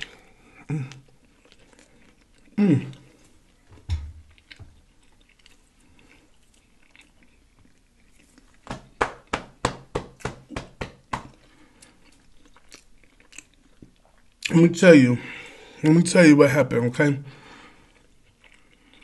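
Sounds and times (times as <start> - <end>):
chewing: 0.0 - 8.7, 11.3 - 14.6, 17.4 - 19.0.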